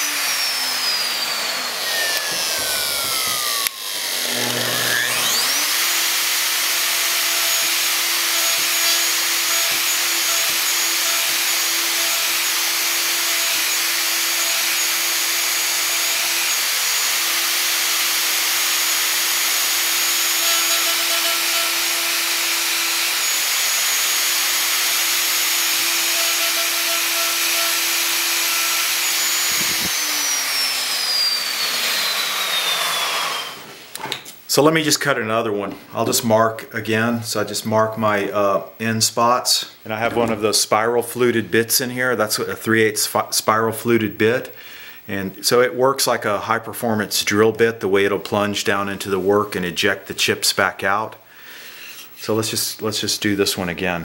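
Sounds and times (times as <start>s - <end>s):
dust extractor running: 0.0s - 6.6s
router running: 0.0s - 33.7s.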